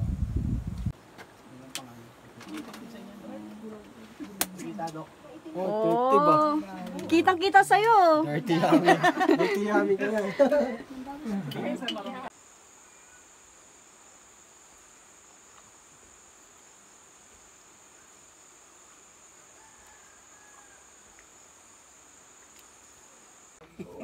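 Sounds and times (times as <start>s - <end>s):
high-pitched insect chorus: 4.6s - 24.0s.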